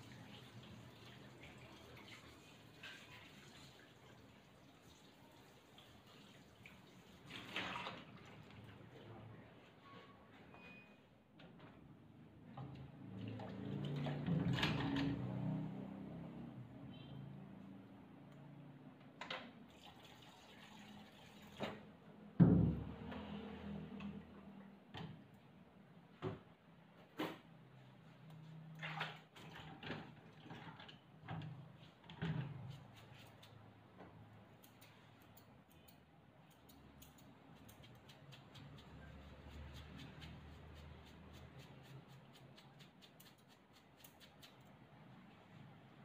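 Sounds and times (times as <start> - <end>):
thump on table: 22.4 - 22.8
scissors clicking: 34.6 - 39.0, 41.0 - 44.7
grooming tools clicking: 34.6 - 44.7.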